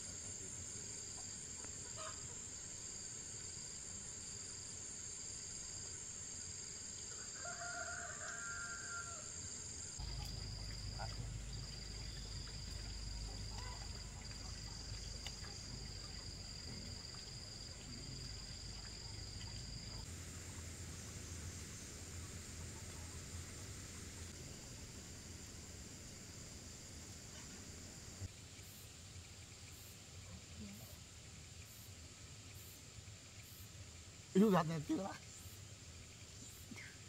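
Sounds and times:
insects chirring: 0.0 - 37.0
rooster crowing: 7.1 - 9.4.

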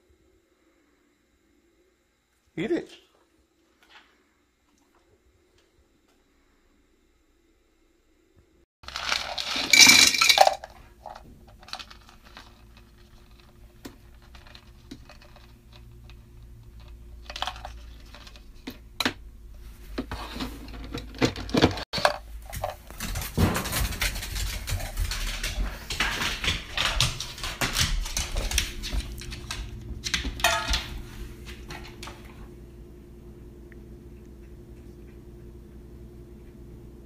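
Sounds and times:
dry kibble rattling: 8.8 - 18.8, 20.8 - 32.1.

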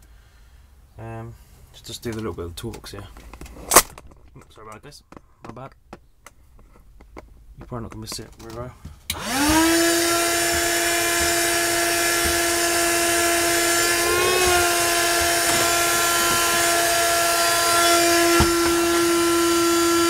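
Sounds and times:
vacuum cleaner motor humming: 9.1 - 20.0.

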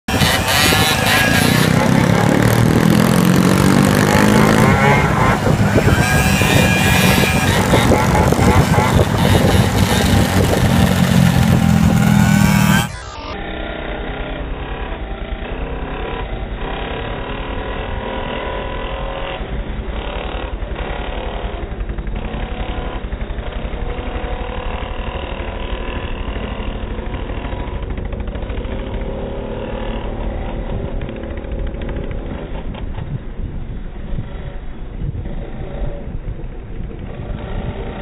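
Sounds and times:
wind on microphone: 0.1 - 12.9, 31.9 - 38.0
scooter engines running: 0.1 - 38.0.

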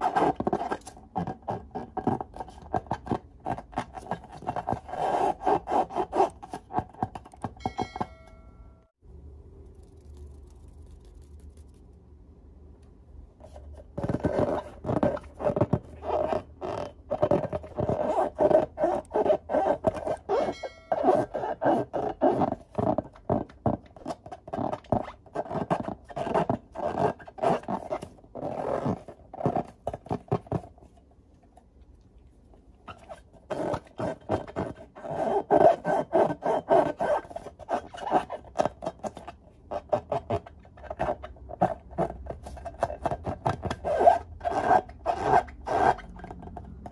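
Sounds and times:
hands rubbing latex balloons: 13.4 - 31.0.

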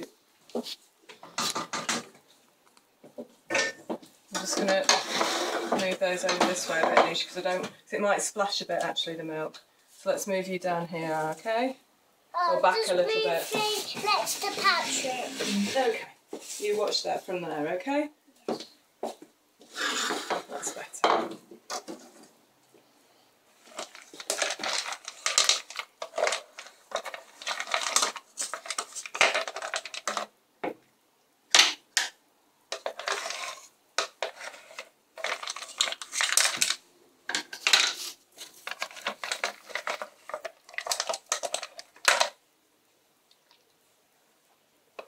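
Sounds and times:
wooden spoon scraping a saucepan: 4.4 - 7.7, 13.2 - 17.2, 19.6 - 20.9, 32.7 - 36.5, 37.6 - 41.8.

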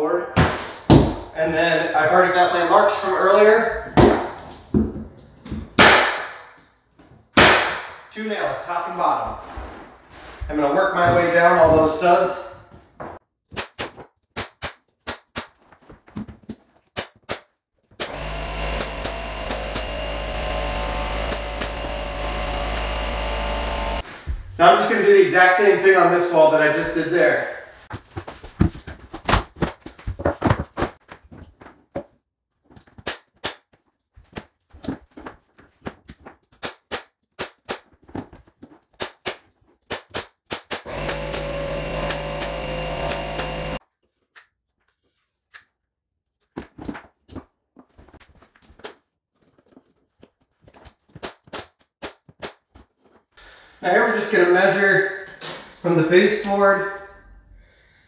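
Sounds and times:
nail gun firing: 5.8 - 6.5, 7.4 - 8.1, 18.0 - 24.0, 39.0 - 43.8.

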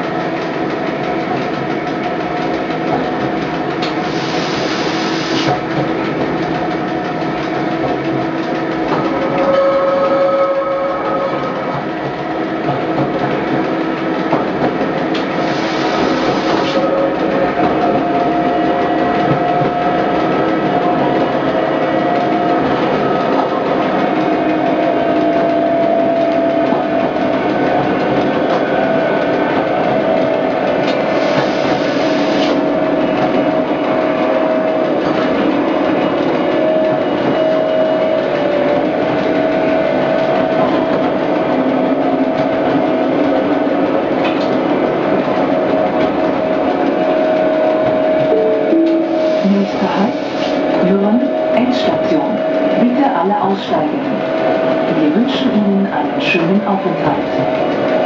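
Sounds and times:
railcar wheels rumbling: 0.0 - 58.0
steady tone: 47.8 - 53.2.

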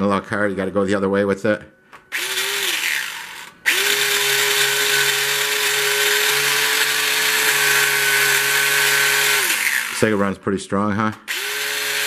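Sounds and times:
electric motor whining: 2.1 - 10.2, 11.3 - 12.0.

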